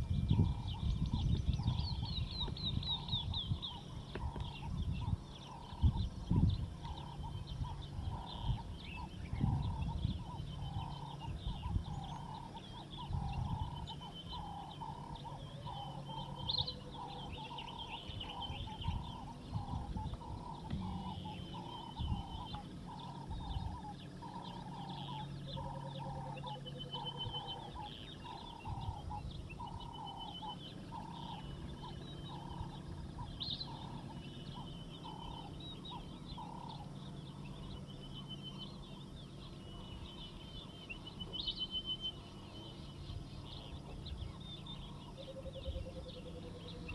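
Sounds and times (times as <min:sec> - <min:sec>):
low rumble: 0:00.0 - 0:46.9.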